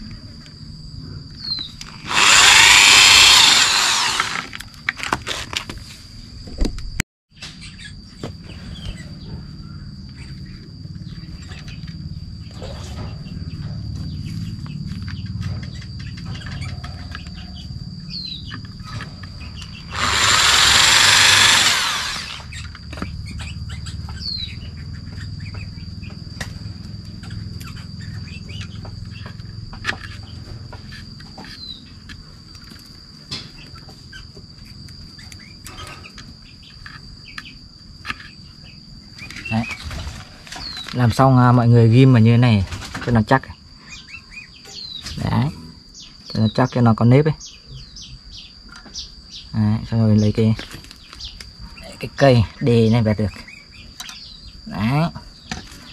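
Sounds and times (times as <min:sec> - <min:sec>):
high insect drone: 0:00.0 - 0:55.9
electric drill boring wood: 0:01.8 - 0:04.6, 0:19.9 - 0:22.6
bird chirps: 0:22.5 - 0:26.3, 0:43.8 - 0:55.9.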